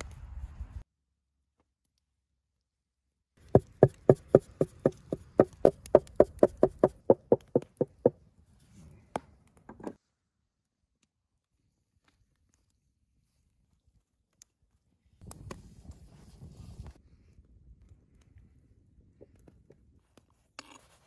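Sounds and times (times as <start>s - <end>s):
stick knocking on wooden board: 3.6s - 8.1s.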